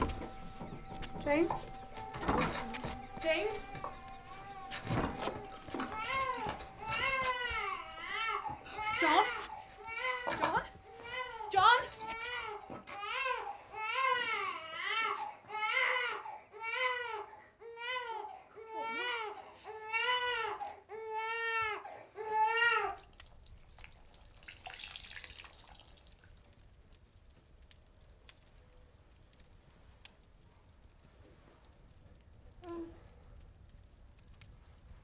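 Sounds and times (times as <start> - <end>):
infant crying: 5.7 - 23.0.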